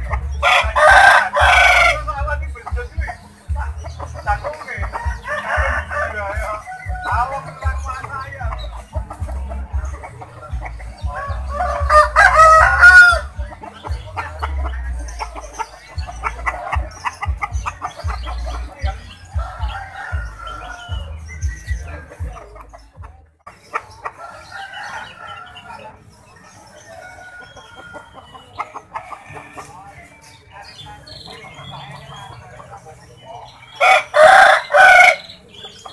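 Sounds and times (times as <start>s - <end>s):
chicken clucks: 0.0s - 35.9s
rooster crowing: 0.4s - 2.1s, 5.0s - 7.2s, 11.2s - 13.3s, 33.8s - 35.2s.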